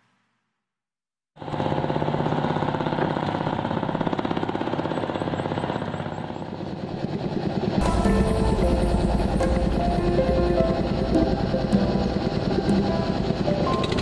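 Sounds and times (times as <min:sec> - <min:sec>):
boat engine knocking: 0:08.2 - 0:14.0.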